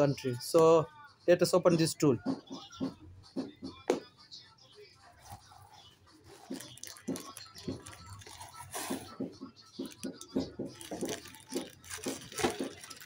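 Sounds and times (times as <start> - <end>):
plastic wrap crinkling: 6.3 - 9.0, 9.8 - 13.0.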